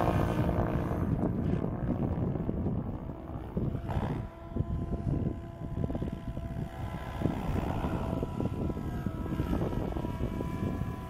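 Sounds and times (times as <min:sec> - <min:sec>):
rc helicopter rotor whine: 0:00.0 - 0:11.0
wind buffeting microphone: 0:00.0 - 0:11.0.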